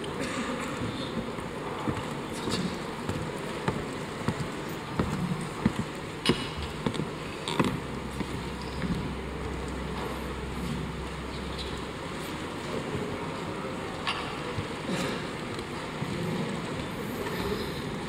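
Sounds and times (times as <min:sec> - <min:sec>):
low steady hum: 0:04.6 - 0:18.0.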